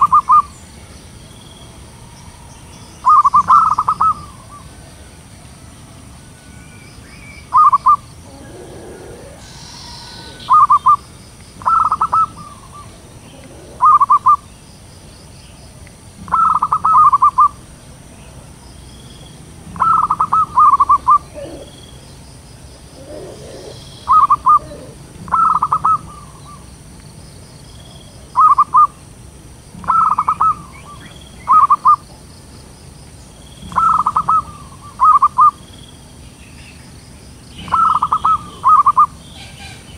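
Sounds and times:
doves cooing: 0.0 - 0.5, 1.9 - 6.5, 7.4 - 14.5, 16.2 - 17.6, 19.6 - 26.7, 28.4 - 29.0, 29.7 - 32.3, 33.6 - 35.6, 37.5 - 39.9.

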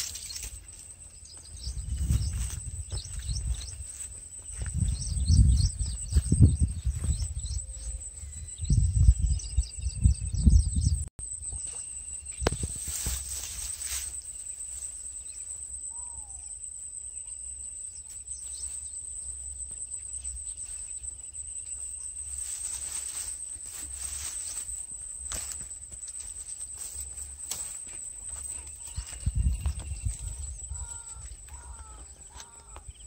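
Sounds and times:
rustling grass and net: 0.0 - 7.2, 11.5 - 15.4, 21.7 - 32.8
insects droning: 0.0 - 33.0
low wind rumble: 1.1 - 11.1.

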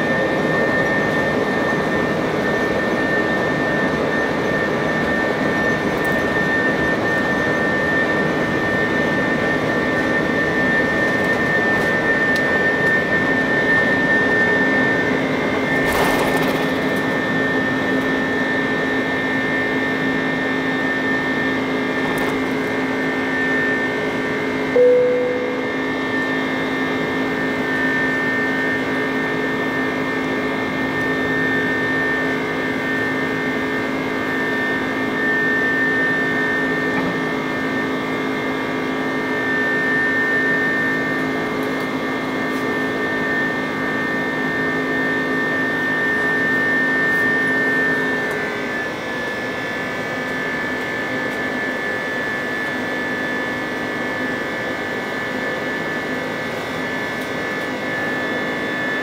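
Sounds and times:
jet engine rush and whine: 0.0 - 59.0
low engine hum: 24.8 - 26.9.

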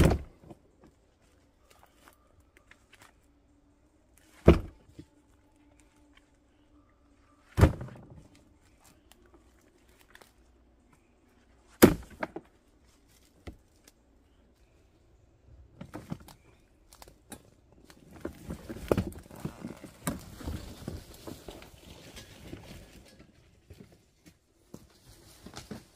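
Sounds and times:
firewood thudding into wheelbarrow: 0.0 - 0.5, 4.4 - 4.8, 7.5 - 8.2, 11.8 - 12.5.

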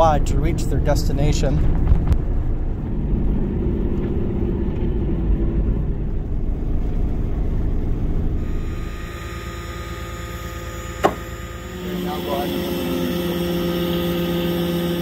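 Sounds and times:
engine and tyre rumble: 0.0 - 8.5.

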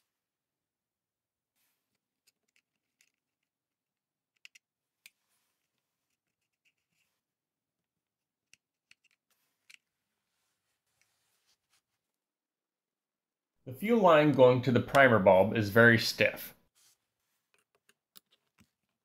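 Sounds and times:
faint clicks and scrapes of parts: 1.6 - 3.6, 4.3 - 7.3, 8.4 - 12.1, 16.8 - 19.0.

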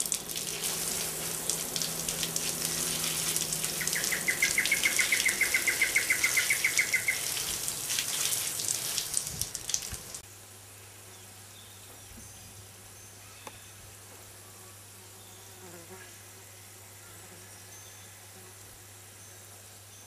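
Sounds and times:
hose spraying water on soil: 0.0 - 10.2
bird trilling chirps: 3.3 - 7.5.

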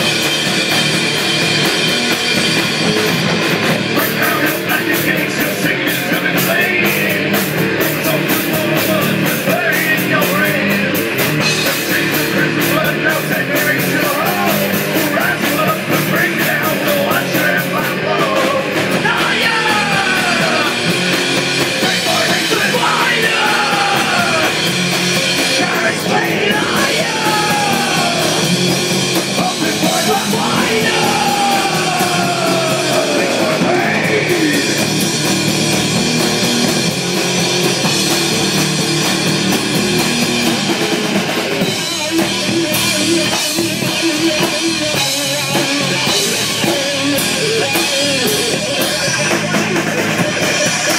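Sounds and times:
rock band playing: 0.0 - 50.9
shouted vocals: 11.7 - 21.1, 21.7 - 35.0.

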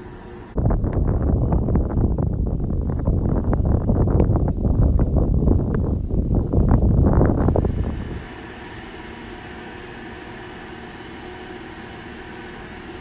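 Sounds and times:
tractor engine drone: 0.0 - 3.0, 6.6 - 13.0
wind buffeting microphone: 0.0 - 10.2.

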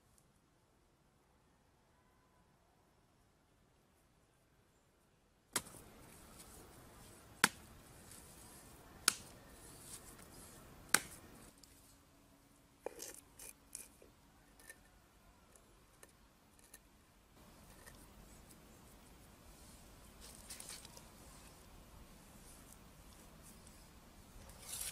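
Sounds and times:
stone scraping: 12.8 - 14.9.

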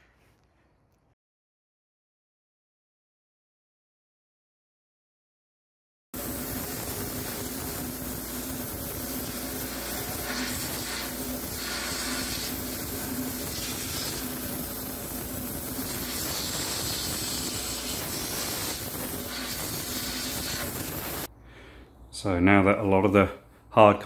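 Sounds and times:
pressure washer spraying: 6.2 - 21.3.

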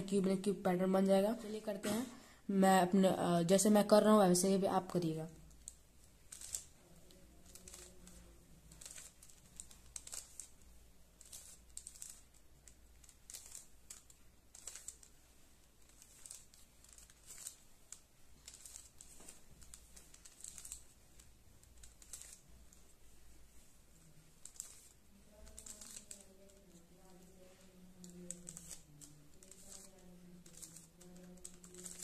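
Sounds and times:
puzzle cube plastic clicking: 5.5 - 6.7, 8.8 - 10.5, 11.2 - 15.1, 15.8 - 20.9, 21.6 - 22.4, 24.4 - 26.3.

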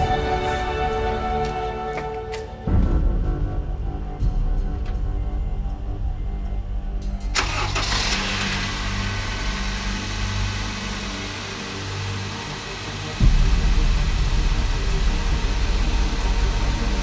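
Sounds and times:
low rumble: 3.2 - 17.0
car engine starting and running: 7.2 - 17.0.

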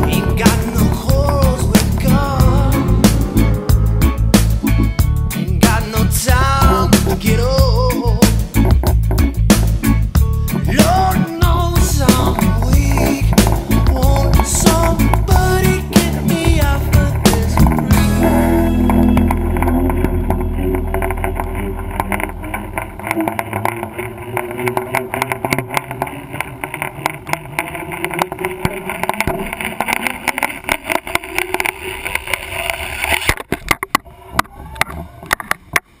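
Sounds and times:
low hum: 0.0 - 35.2
rapid clicks and knocks: 8.2 - 9.7, 11.8 - 34.1.

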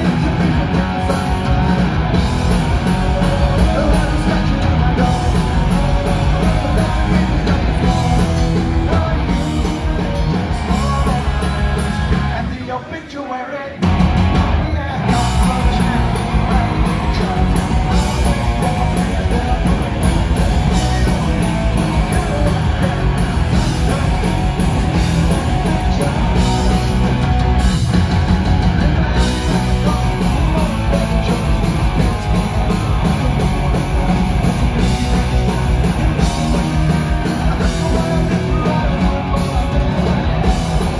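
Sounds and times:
punk rock band playing live: 0.0 - 40.9.

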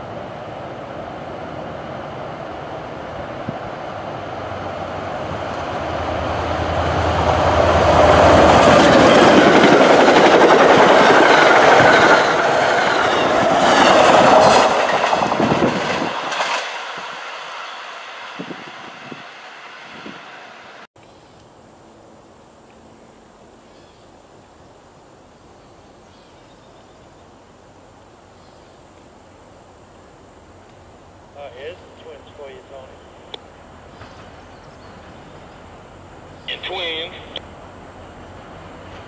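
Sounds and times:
diesel locomotive engine drone: 0.0 - 26.1, 26.7 - 39.0
train wheels clicking over rail joints: 6.1 - 18.5.

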